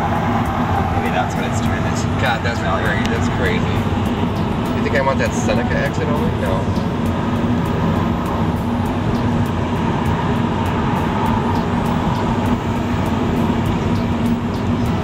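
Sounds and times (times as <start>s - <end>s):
car road and engine noise: 0.0s - 15.0s.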